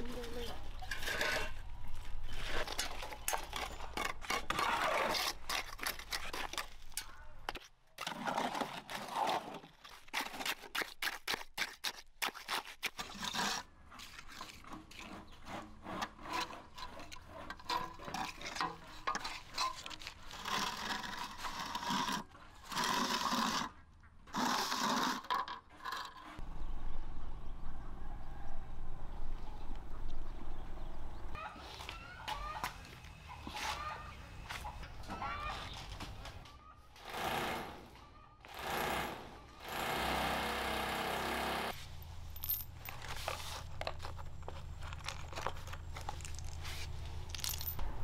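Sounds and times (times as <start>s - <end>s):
trowels scraping wet mortar: 0.2s - 1.6s, 2.2s - 26.4s.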